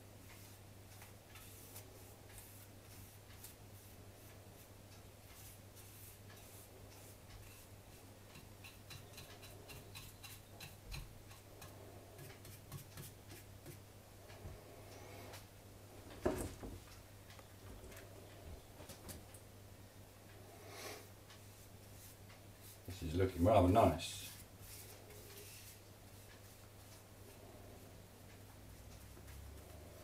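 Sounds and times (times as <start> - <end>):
paintbrush ticks and clicks on wood: 8.2 - 13.9.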